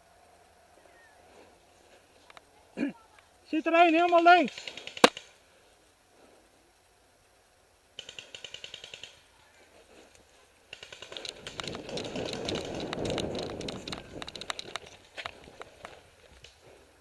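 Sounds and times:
rustling of long grass: 0:00.0 - 0:08.1, 0:08.8 - 0:17.0
paintball markers firing: 0:04.0 - 0:05.4, 0:08.0 - 0:09.2
running footsteps in grass: 0:09.4 - 0:17.0.

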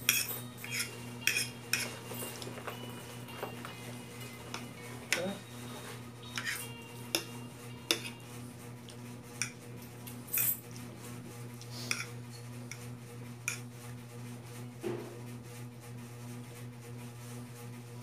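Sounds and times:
fork clinking on a plate: 0:00.0 - 0:05.3, 0:06.3 - 0:08.2, 0:11.9 - 0:12.1.

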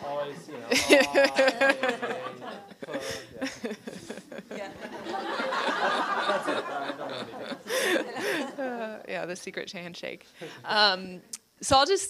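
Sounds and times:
murmur of chatter: 0:00.0 - 0:09.4
audience laughing: 0:00.6 - 0:08.9.

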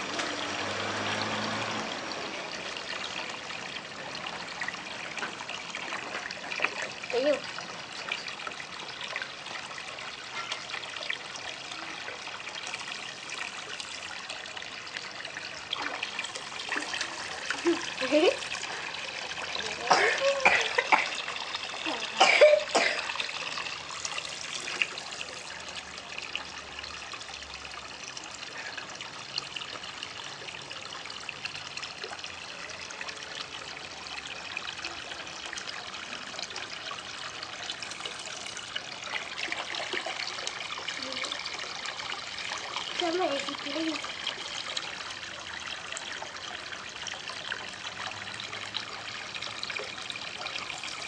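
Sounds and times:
water trickling into pond: 0:00.0 - 0:51.0
loud cough-like sounds: 0:19.9 - 0:21.2, 0:22.2 - 0:23.2.

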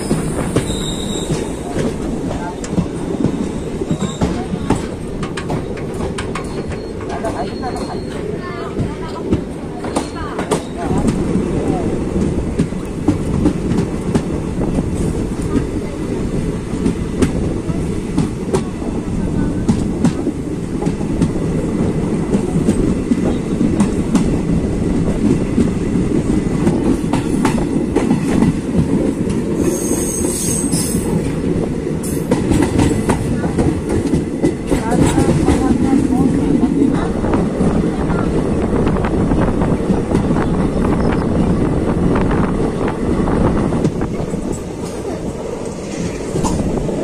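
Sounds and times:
train wheels rumbling on rail: 0:00.0 - 0:47.0
high-pitched wheel squeal: 0:00.1 - 0:01.5, 0:29.7 - 0:31.0.

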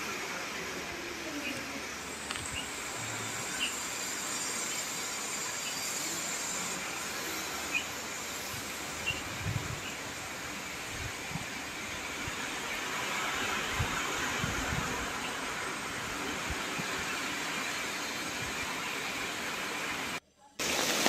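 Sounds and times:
steady rushing noise: 0:00.0 - 0:21.0.

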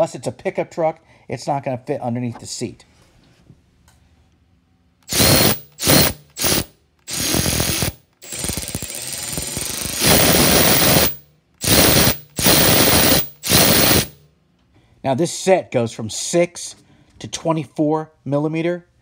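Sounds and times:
power ratchet spinning: 0:05.1 - 0:14.2.

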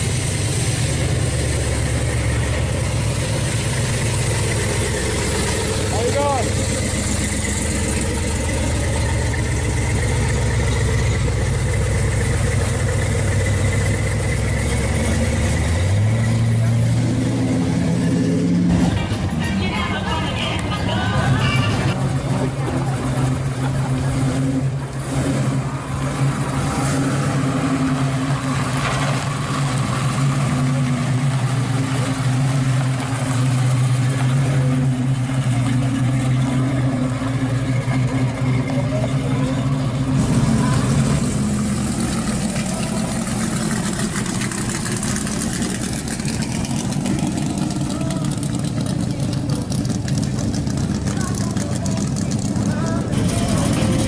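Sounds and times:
car engine idling: 0:00.0 - 0:54.0
car engine running: 0:00.0 - 0:54.0.

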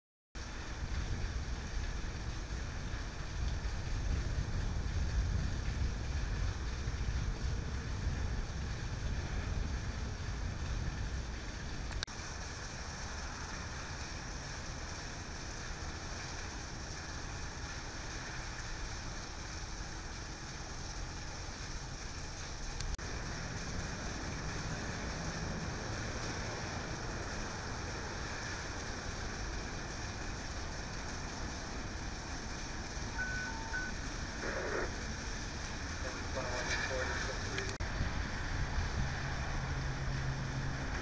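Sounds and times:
heavy rain pouring: 0:00.4 - 0:41.0
low rumble: 0:00.7 - 0:12.0.

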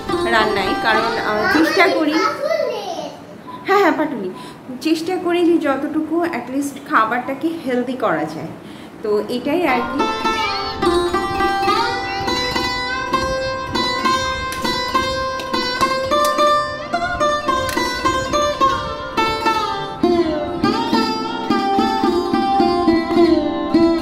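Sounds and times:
plucked string melody: 0:00.0 - 0:02.2, 0:09.6 - 0:24.0.

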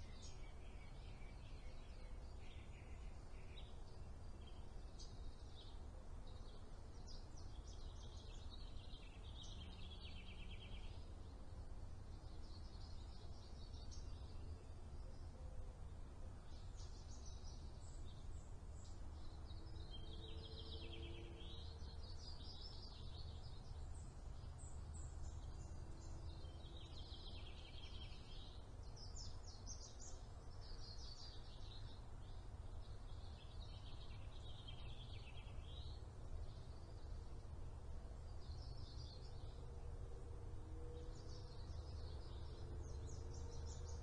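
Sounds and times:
low outdoor rumble: 0:00.0 - 0:44.0
songbirds singing: 0:00.0 - 0:44.0.

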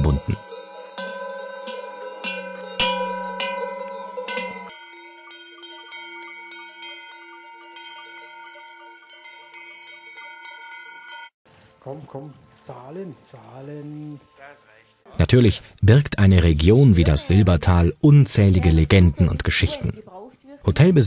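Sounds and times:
cowbells clanging: 0:00.0 - 0:11.3.

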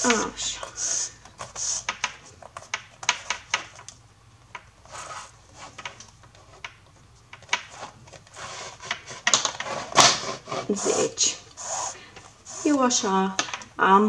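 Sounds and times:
yarn rubbing through holes: 0:04.8 - 0:13.3.

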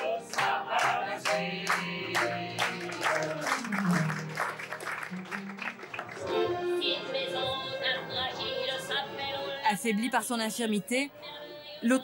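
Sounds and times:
audience clapping along: 0:00.0 - 0:06.8
piano accompaniment: 0:00.0 - 0:09.6
person singing: 0:02.2 - 0:04.3.

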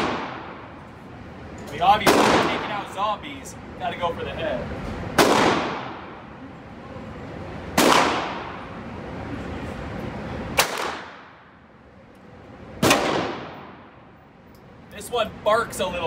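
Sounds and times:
gunshots echoing indoors: 0:00.0 - 0:00.8, 0:02.0 - 0:03.0, 0:05.2 - 0:06.4, 0:07.7 - 0:08.8, 0:10.5 - 0:11.7, 0:12.8 - 0:14.2.

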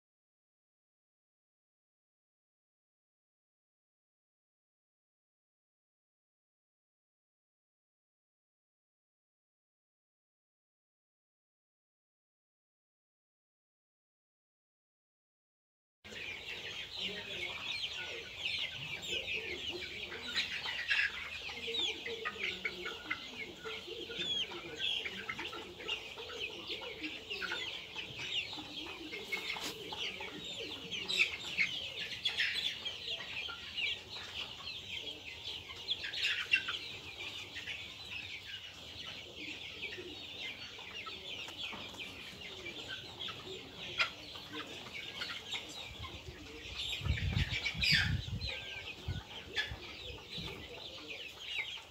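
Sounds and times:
chickens peeping and clucking: 0:16.1 - 0:51.9.

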